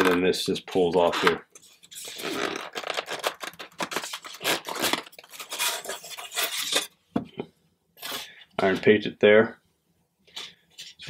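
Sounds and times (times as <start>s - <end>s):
styrofoam scraping on styrofoam: 1.0s - 6.9s.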